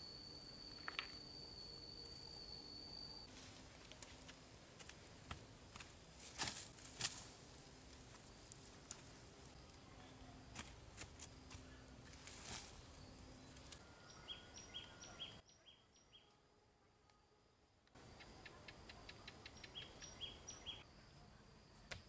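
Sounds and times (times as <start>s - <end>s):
bird chirping: 12.9s - 16.3s, 18.0s - 20.9s.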